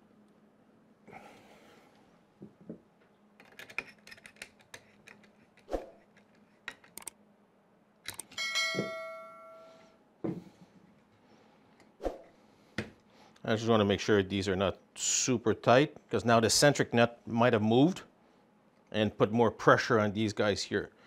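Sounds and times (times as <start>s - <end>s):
metal parts clicking and tapping: 3.4s - 7.1s
metallic ring: 8.3s - 10.0s.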